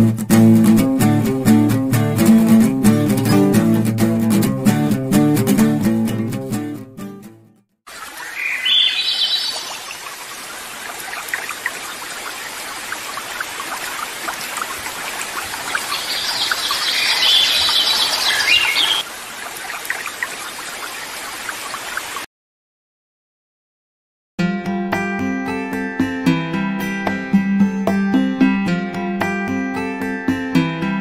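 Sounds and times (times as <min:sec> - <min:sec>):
sea water washing: 0:07.9 - 0:22.2.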